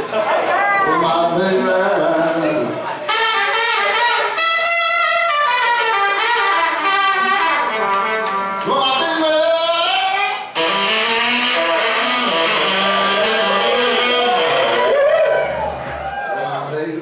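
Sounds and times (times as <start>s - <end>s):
horn section playing: 3.1s - 16.4s.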